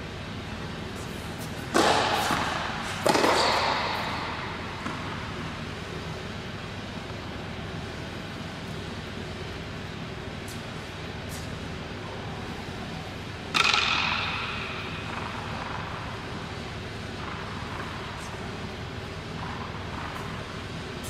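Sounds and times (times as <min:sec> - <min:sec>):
steady low hum: 0:00.0 - 0:21.0
tennis ball struck: 0:01.7 - 0:05.2, 0:13.5 - 0:15.8.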